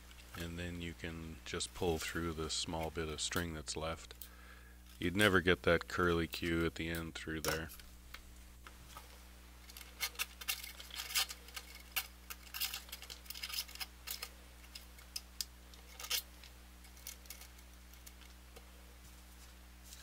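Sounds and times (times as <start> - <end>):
guitar strings clicking and scraping: 6.4 - 8.2.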